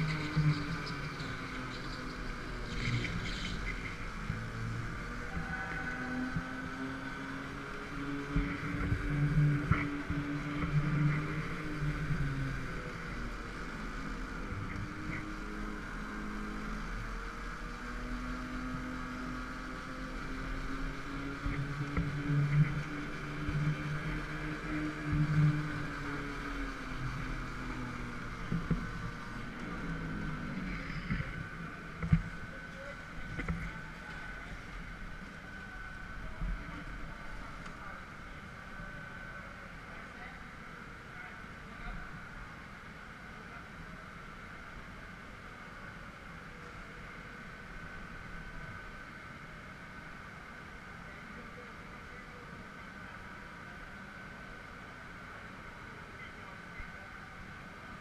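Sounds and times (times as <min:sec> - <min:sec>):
go-kart motor: 0:00.0 - 0:41.1.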